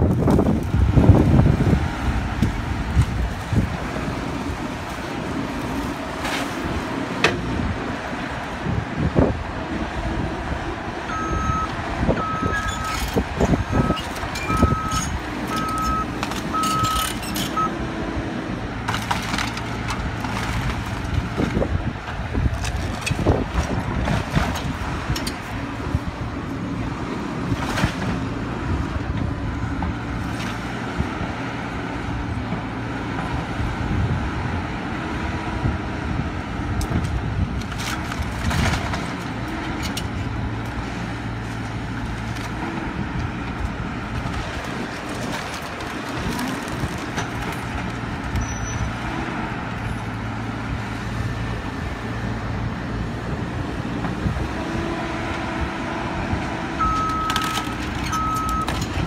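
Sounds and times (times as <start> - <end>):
excavator diesel engine running: 0.0 - 59.0
wood cracking and crunching: 18.8 - 25.6, 36.9 - 48.4, 56.9 - 59.0.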